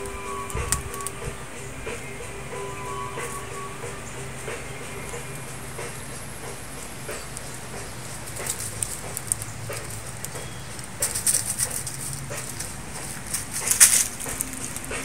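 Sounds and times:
leaves and twigs rustling: 0:04.2 - 0:15.0.

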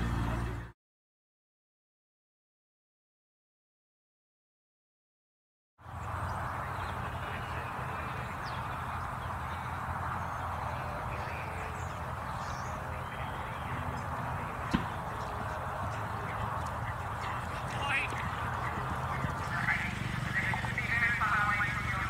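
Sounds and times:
outdoor background noise: 0:00.0 - 0:00.8, 0:05.8 - 0:22.0
sharp tap: 0:14.7 - 0:15.1.

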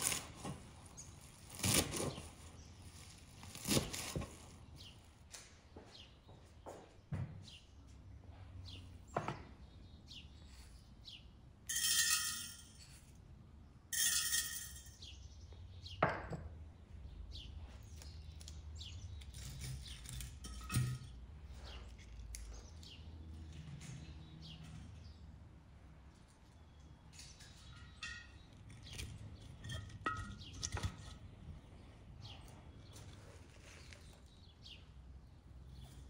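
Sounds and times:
small birds chirping: 0:00.0 - 0:11.4, 0:16.7 - 0:20.4, 0:21.5 - 0:25.5, 0:26.1 - 0:36.0
glass jar and bowls clinking: 0:11.7 - 0:12.8, 0:13.9 - 0:15.0.

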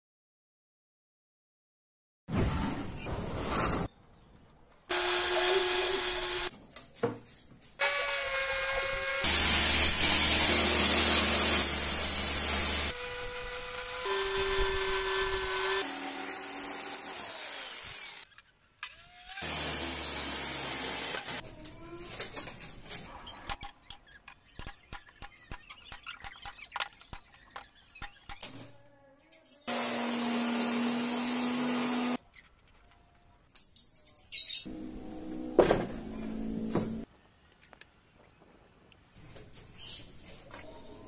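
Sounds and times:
power saw cutting plywood: 0:04.9 - 0:06.5, 0:07.8 - 0:18.3, 0:18.9 - 0:21.4, 0:29.7 - 0:32.2
power tool whining: 0:04.9 - 0:06.5, 0:07.8 - 0:18.2, 0:29.7 - 0:32.2.

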